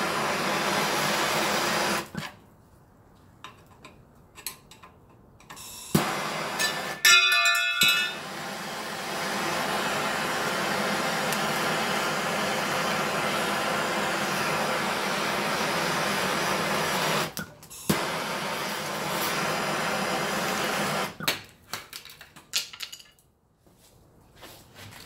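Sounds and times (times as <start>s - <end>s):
gas torch hissing: 0.0s - 2.3s, 5.6s - 7.1s, 7.9s - 21.2s
short metallic ring: 7.0s - 8.2s.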